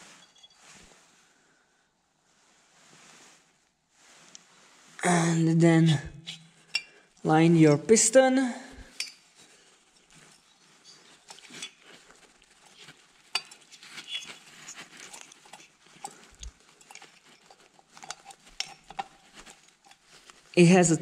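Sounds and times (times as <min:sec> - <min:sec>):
hands rustling: 0:08.8 - 0:21.0.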